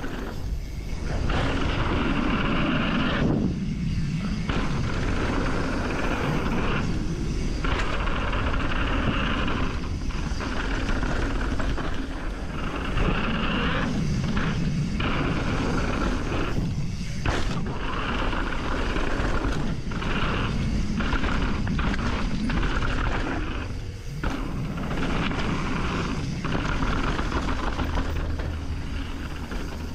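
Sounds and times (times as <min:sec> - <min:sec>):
bike tyre and frame rumble: 0:00.0 - 0:29.9
wind buffeting microphone: 0:00.0 - 0:29.9.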